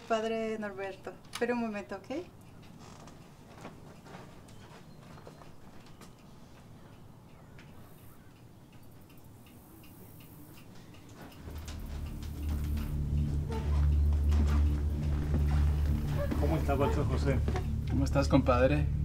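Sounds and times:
faint irregular ticking: 0.0 - 19.0
low musical drone: 10.0 - 19.0.

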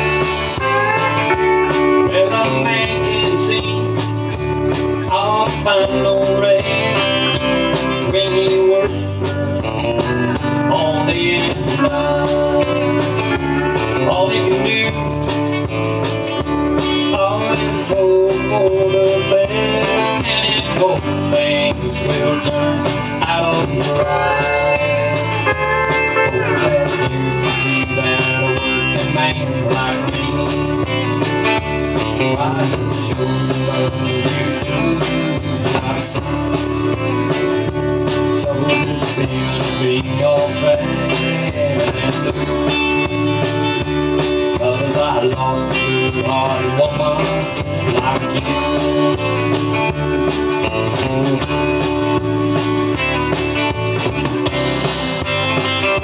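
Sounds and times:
harmonica: 0.0 - 4.0, 23.8 - 29.0
country band with guitars: 0.0 - 56.0.

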